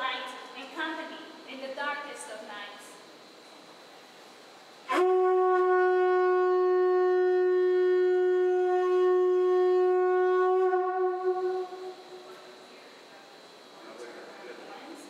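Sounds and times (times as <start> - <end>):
conch shell trumpet note: 4.9 - 12.5.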